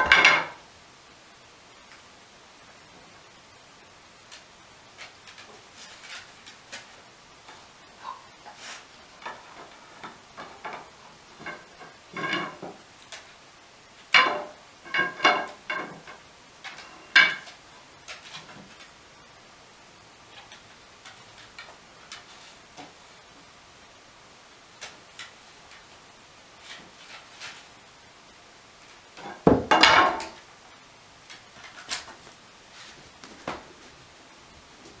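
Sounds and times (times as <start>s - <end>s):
wooden spindles knocking and clattering: 0.0s - 0.6s, 4.2s - 19.2s, 20.2s - 23.6s, 28.8s - 30.6s, 31.2s - 33.9s.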